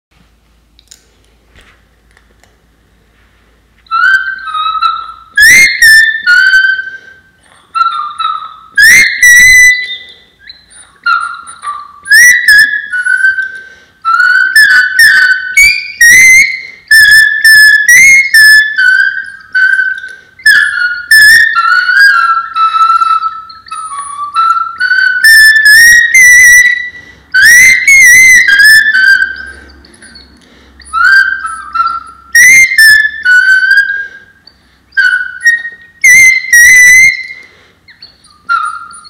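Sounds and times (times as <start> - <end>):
high-pitched dog whistle: 3.8 - 39.0.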